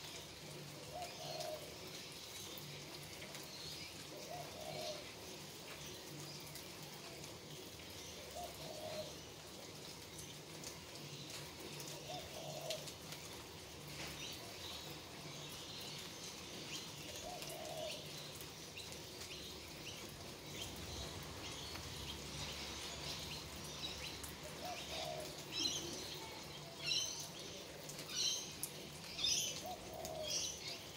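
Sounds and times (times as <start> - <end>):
light rain with drips: 0.0 - 30.9
dove cooing: 0.9 - 1.8, 4.1 - 5.1, 8.2 - 9.2, 11.8 - 13.0, 17.1 - 18.2, 24.4 - 26.4, 29.3 - 30.8
small birds chirping: 13.9 - 30.9.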